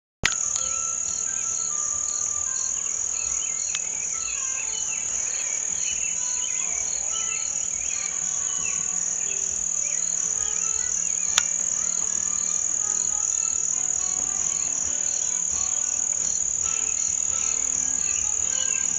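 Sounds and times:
insects droning: 0.2s - 18.9s
sharp click: 11.3s - 11.6s.

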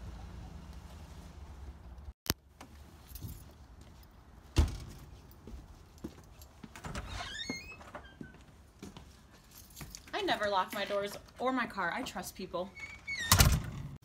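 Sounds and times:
keys jangling: 9.4s - 10.2s.

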